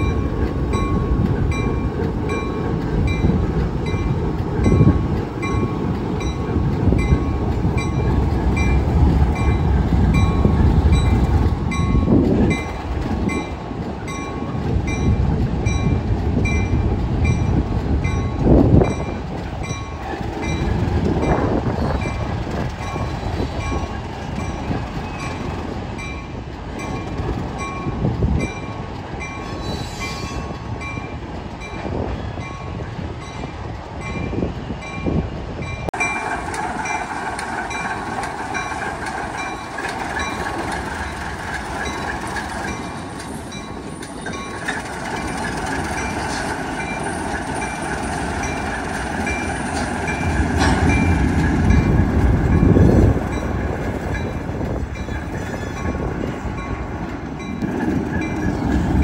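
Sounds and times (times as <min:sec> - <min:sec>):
diesel locomotive engine rumble: 0:00.0 - 0:59.0.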